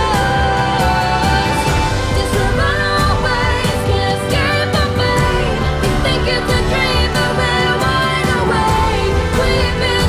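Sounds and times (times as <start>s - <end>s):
pop song with singing: 0.0s - 10.0s.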